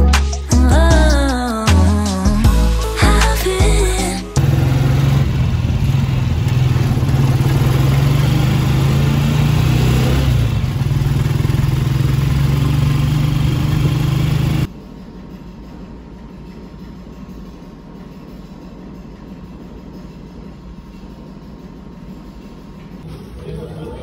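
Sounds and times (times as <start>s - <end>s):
motorcycle engine running: 4.4s - 14.7s
road and wind noise: 4.4s - 14.7s.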